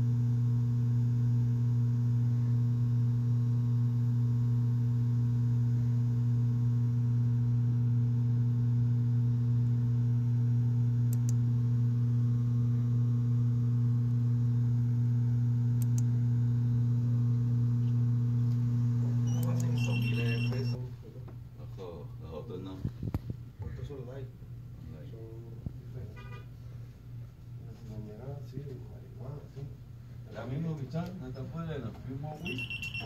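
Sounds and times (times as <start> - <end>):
steady electrical hum: 11.0 - 33.0.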